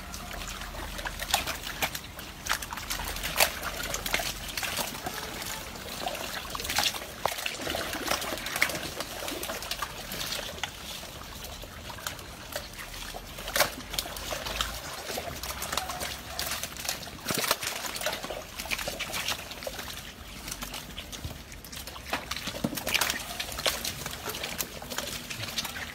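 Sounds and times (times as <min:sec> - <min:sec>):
crocodiles splashing in water: 0:00.0 - 0:25.9.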